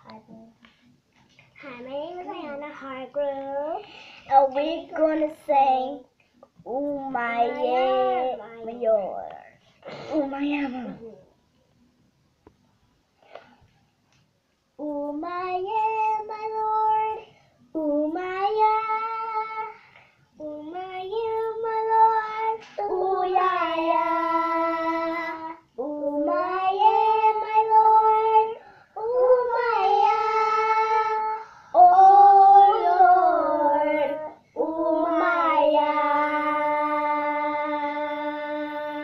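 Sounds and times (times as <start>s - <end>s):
girls singing together unaccompanied: 14.8s - 39.0s.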